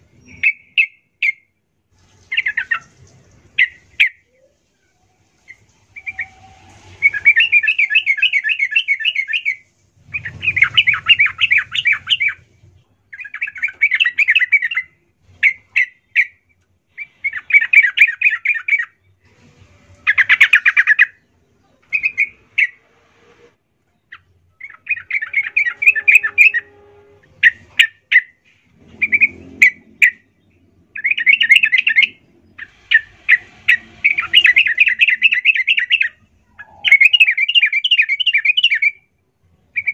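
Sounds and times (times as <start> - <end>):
bulbul singing: 5.4 - 19.0, 24.0 - 39.9.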